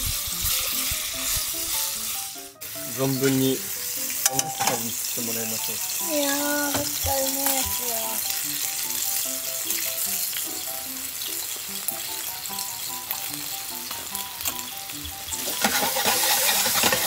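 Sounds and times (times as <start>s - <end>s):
food sizzling in frying pan: 0.0s - 17.0s
light background melody: 0.0s - 17.0s.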